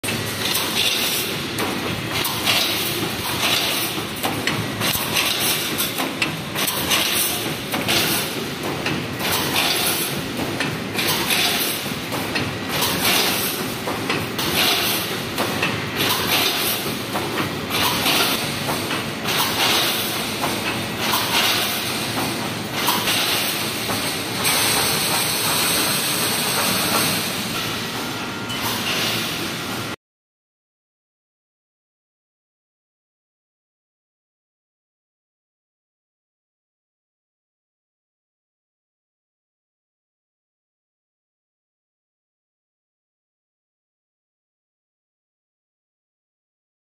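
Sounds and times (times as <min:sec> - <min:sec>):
welding machine running: 0:00.1 - 0:28.2.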